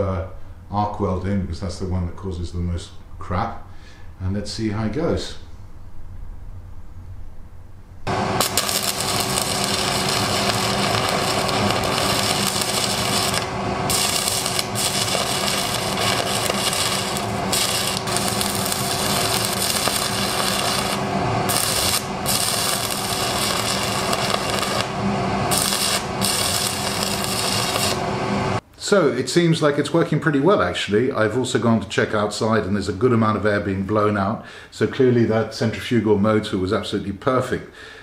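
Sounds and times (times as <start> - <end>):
steady hum: 0.0 - 29.0
welding arc crackling: 8.1 - 28.6.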